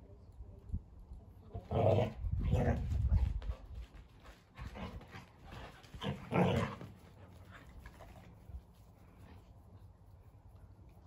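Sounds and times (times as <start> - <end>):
dogs growling while play-fighting: 1.7 - 3.4, 4.6 - 7.2.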